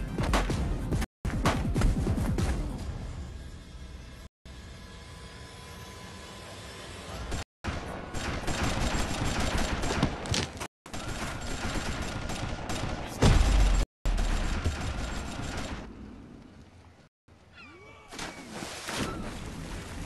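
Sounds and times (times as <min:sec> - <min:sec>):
rapid gunfire: 0:07.3 - 0:10.3, 0:10.9 - 0:15.9.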